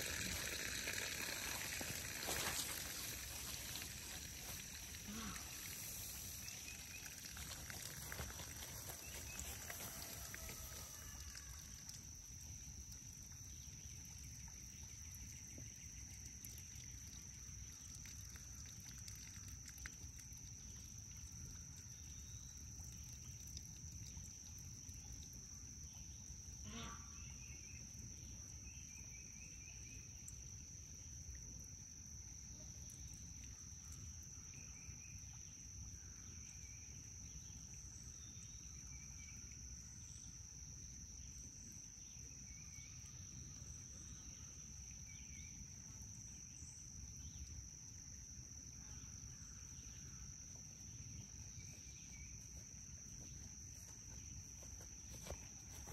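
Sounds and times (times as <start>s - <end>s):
high-pitched insect drone: 0.0s - 21.2s.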